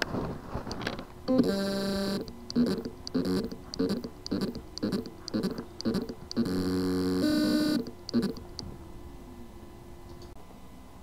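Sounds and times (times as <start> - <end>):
hard drive motor hum: 0.6 - 10.4
hard drive motor buzzing knock: 1.3 - 8.5.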